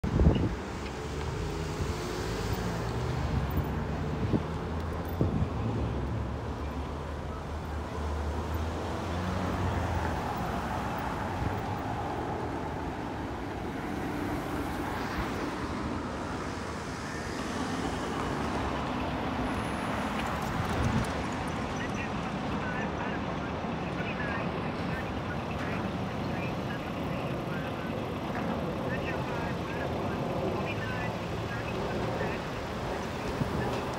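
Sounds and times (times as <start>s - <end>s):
cars driving past: 0.1s - 33.9s.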